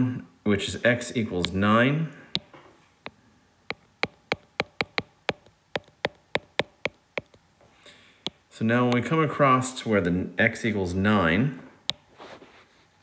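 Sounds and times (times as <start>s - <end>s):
stylus clicking on tablet screen: 2.4s - 7.4s, 8.2s - 9.1s, 11.9s - 12.1s.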